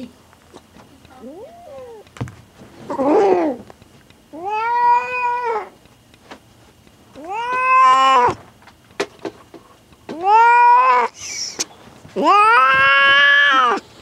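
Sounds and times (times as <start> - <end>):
cat yowling: 1.2 - 2.0, 4.4 - 5.7, 7.2 - 8.4, 10.1 - 11.2, 12.2 - 13.8.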